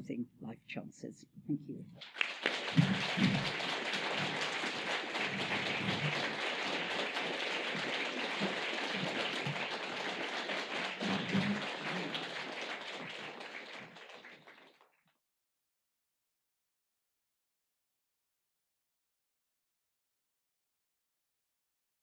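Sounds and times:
audience applauding: 0:02.0 - 0:14.9.

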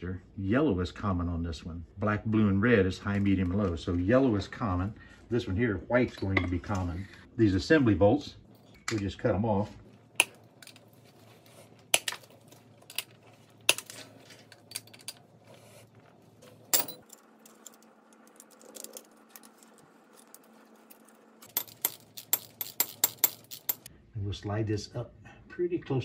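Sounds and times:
metal clinks and taps: 0:21.4 - 0:23.9.

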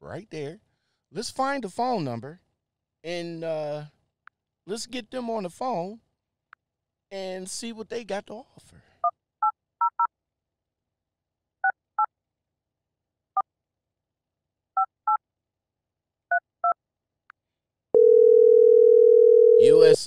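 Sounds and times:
telephone ringing tone: 0:18.0 - 0:20.0.

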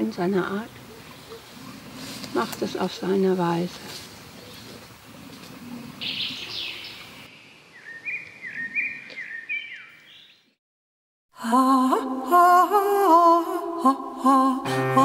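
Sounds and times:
songbirds singing: 0:00.0 - 0:10.6
music with held notes: 0:14.6 - 0:15.0.

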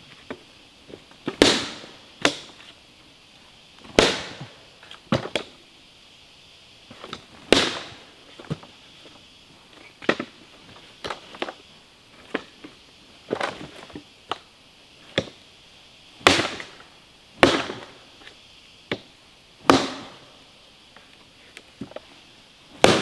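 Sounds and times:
hatchet chopping into log: 0:22.8 - 0:23.0.

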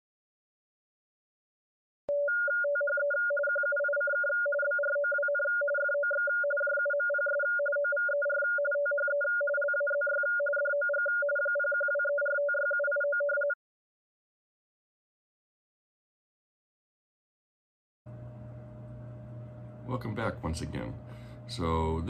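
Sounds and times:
morse code beeping: 0:02.1 - 0:13.6.

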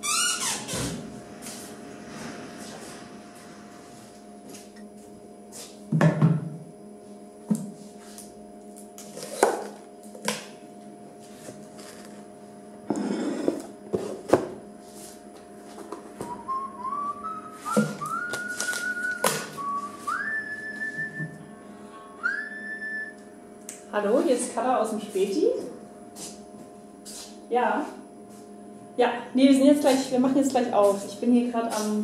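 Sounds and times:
steady hum: 0:00.0 - 0:32.0
person whistling a tune: 0:16.2 - 0:23.3.

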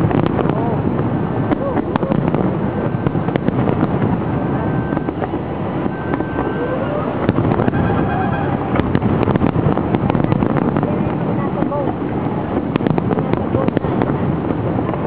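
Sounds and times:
fireworks bangs and crackles: 0:00.0 - 0:15.0
fireworks whistles: 0:02.4 - 0:09.5.

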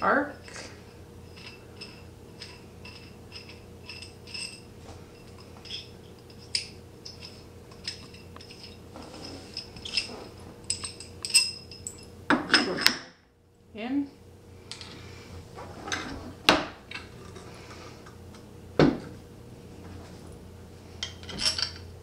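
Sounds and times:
metal tubing clinking: 0:01.2 - 0:12.9, 0:21.0 - 0:21.9.

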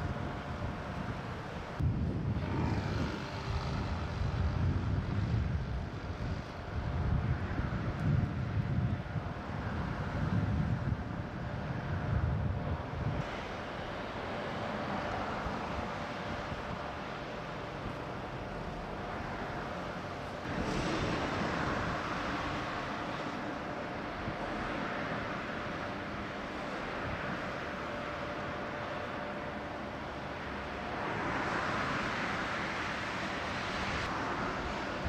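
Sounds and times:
wind buffeting microphone: 0:00.0 - 0:14.4, 0:20.1 - 0:24.8
broad noise: 0:00.0 - 0:35.0
distant mechanical drone: 0:00.0 - 0:35.0.

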